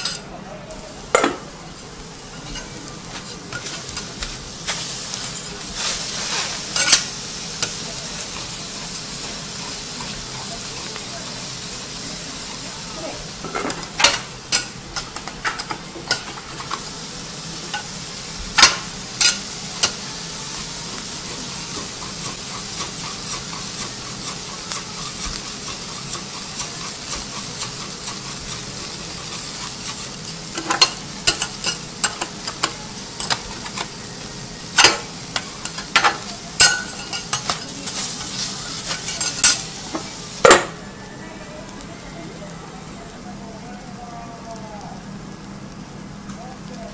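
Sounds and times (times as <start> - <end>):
food sizzling on a griddle: 0.0 - 46.9
metal spatulas clinking and scraping: 6.4 - 9.2, 35.6 - 39.6.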